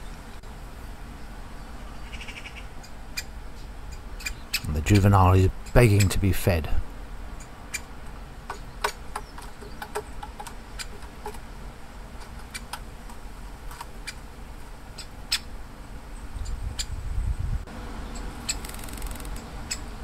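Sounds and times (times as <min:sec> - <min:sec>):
woodpecker begging calls: 0:01.9 - 0:06.3, 0:07.4 - 0:11.4, 0:18.0 - 0:20.0.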